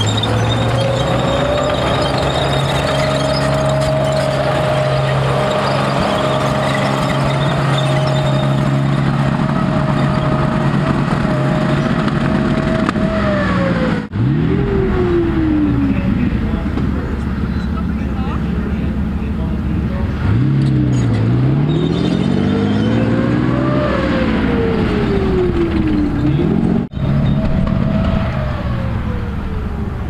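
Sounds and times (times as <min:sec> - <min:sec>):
vehicle engine running loudly: 0:00.0 - 0:30.0.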